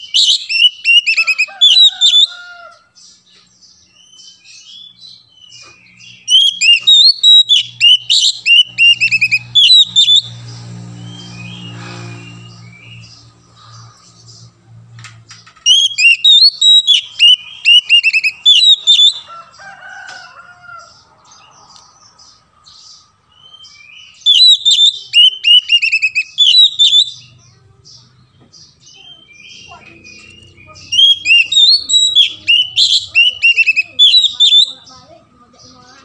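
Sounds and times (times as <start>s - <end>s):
bird whistling song: 0.0s - 2.3s, 3.9s - 13.8s, 15.6s - 19.3s, 23.3s - 27.4s, 28.9s - 34.9s
soft bird chatter: 0.0s - 36.0s.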